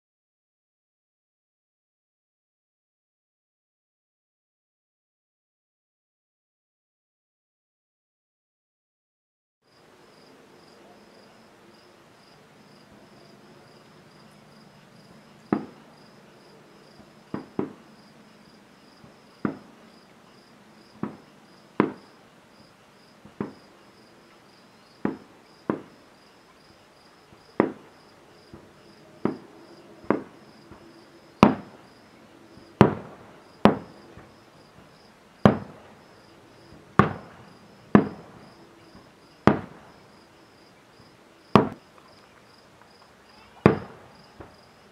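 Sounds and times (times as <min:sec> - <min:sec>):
crickets chirping: 0:09.7 - 0:44.9
distant firework bangs: 0:12.7 - 0:44.9.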